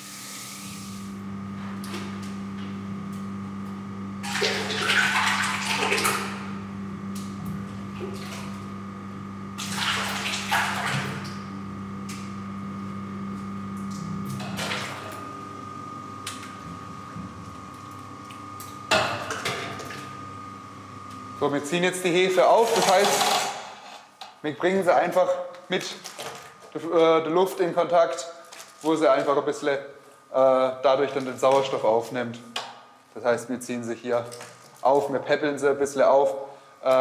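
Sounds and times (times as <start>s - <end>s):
steady mechanical hum: 0.0s - 37.0s
water sloshing in a steel vat: 4.2s - 6.5s, 7.8s - 8.7s, 9.6s - 11.5s, 13.9s - 15.2s.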